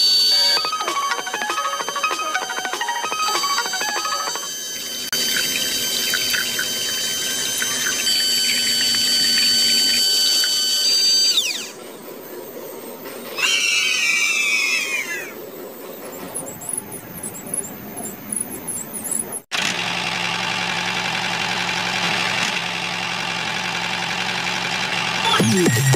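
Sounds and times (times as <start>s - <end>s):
toy motor whine: 0.0s - 11.8s
squealing glides: 13.3s - 19.4s.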